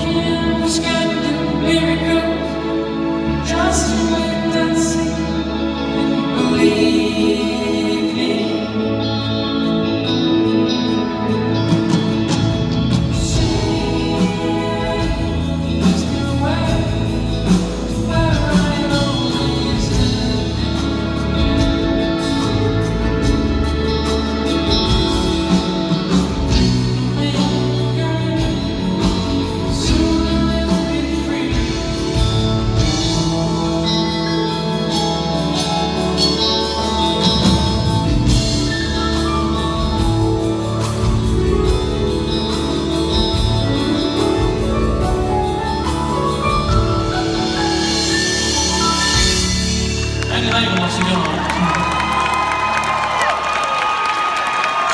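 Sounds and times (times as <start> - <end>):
person singing: 0.0 - 53.3
electric guitar: 0.0 - 54.9
drum kit: 11.3 - 54.9.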